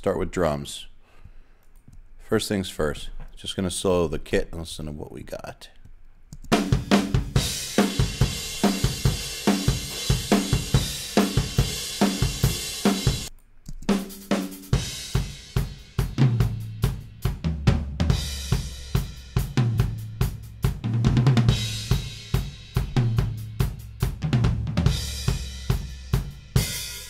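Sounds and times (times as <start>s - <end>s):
rock drum beat: 6.5s - 13.3s, 13.9s - 27.0s.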